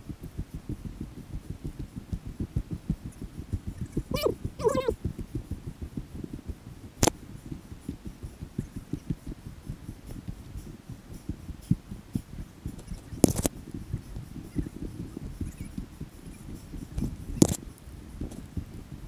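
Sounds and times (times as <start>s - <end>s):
sharp click: 12.9s - 13.5s.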